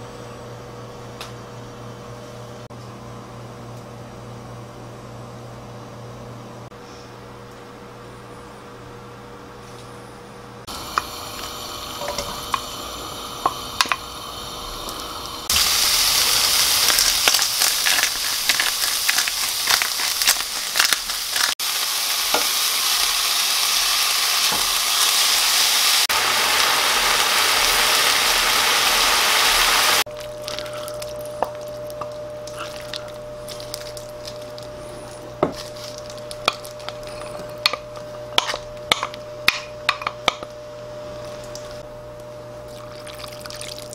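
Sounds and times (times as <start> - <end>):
meat sizzling in a pan: 10.7 - 30.1.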